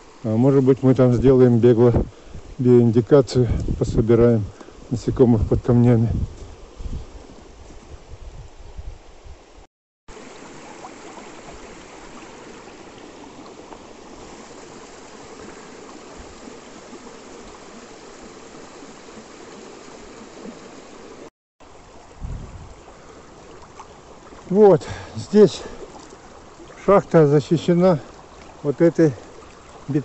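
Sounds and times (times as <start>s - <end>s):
stream rushing over stones: 10.1s - 30.0s.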